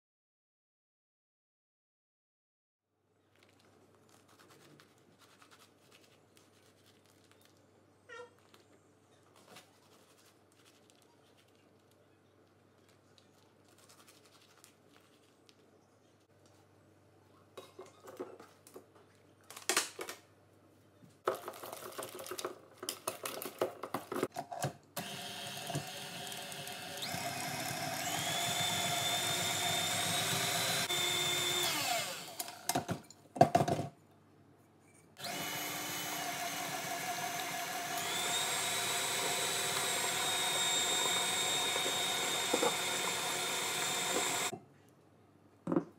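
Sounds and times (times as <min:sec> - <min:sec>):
stand mixer whisking: 0:25.6 - 0:32.5, 0:36.6 - 0:44.5.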